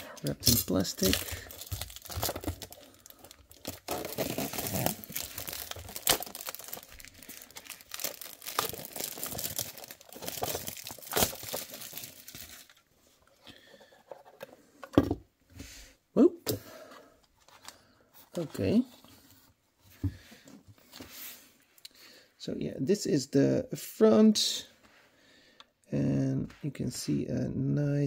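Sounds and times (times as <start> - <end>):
plastic film crinkling: 0.2 - 12.9.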